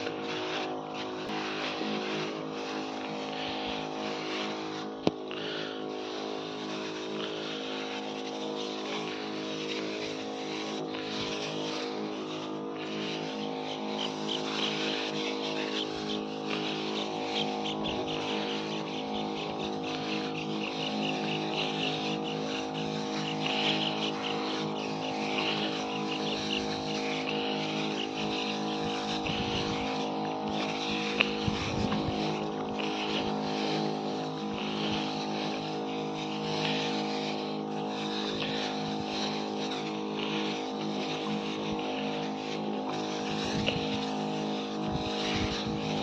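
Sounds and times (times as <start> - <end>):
motorised sprayer running: 0.0 - 46.0.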